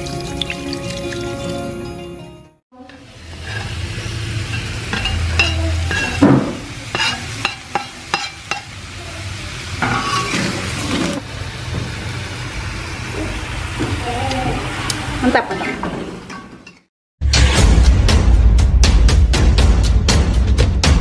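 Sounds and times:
food sizzling in wok: 2.8 - 16.6
spatula scraping and clinking: 3.3 - 3.8, 4.4 - 6.2, 6.9 - 8.7, 9.8 - 10.7
loud knock on pan: 5.0 - 7.9.

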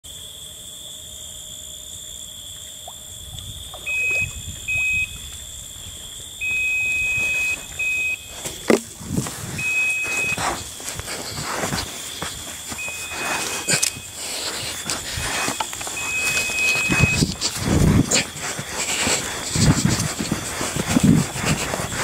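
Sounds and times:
bite alarm tone: 3.8 - 5.3, 5.9 - 8.9, 9.5 - 22.0
footsteps on sand: 7.0 - 22.0.

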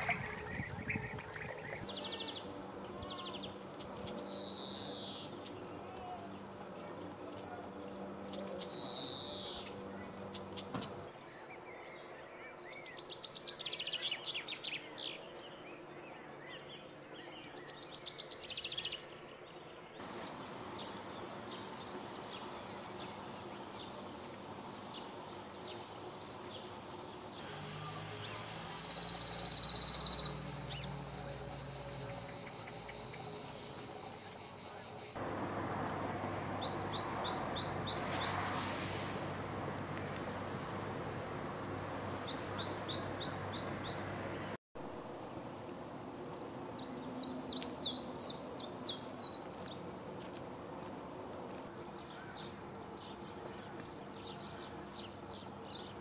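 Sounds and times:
bird descending song phrases: 0.0 - 3.6, 27.4 - 35.1, 36.4 - 38.6
bird high jingling song: 0.0 - 5.6, 20.5 - 22.6, 27.4 - 35.2.

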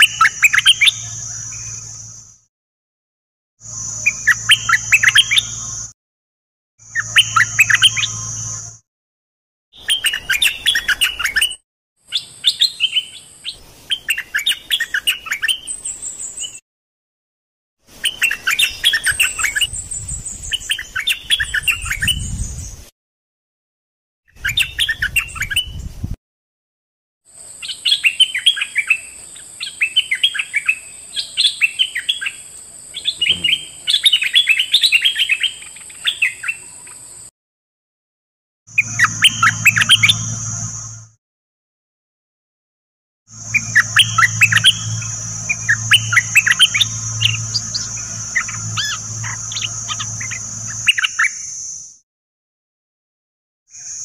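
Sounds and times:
bird singing bubbly chatter: 0.0 - 2.1, 27.6 - 37.1, 38.8 - 40.6, 43.4 - 51.6
steady high whine: 38.8 - 41.2, 43.3 - 51.5.

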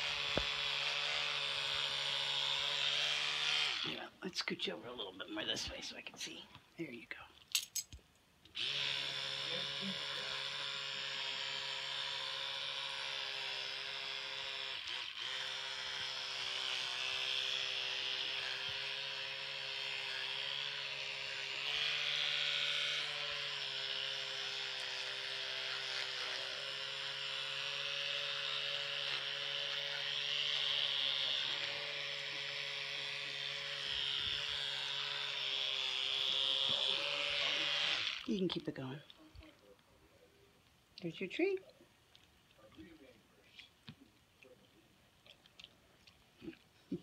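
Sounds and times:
electric toothbrush buzzing: 0.0 - 5.9, 8.5 - 39.6.

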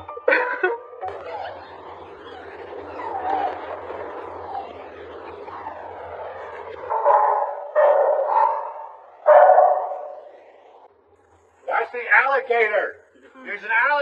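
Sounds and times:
large dog barking: 6.9 - 10.2.

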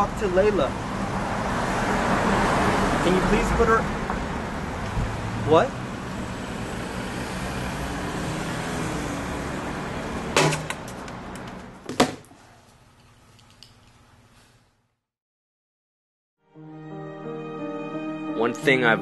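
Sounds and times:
city traffic noise: 0.0 - 12.2
sharp knock: 10.4 - 10.8.

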